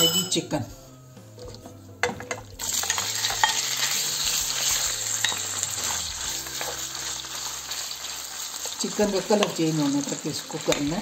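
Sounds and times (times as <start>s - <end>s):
chicken sizzling in hot oil: 2.6s - 11.0s.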